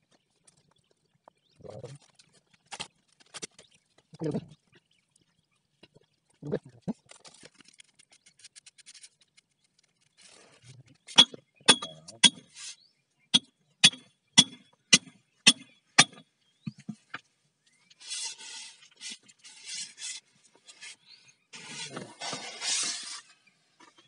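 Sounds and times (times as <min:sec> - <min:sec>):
hammer striking metal: 0:13.4 - 0:16.2
scraping: 0:21.6 - 0:24.0.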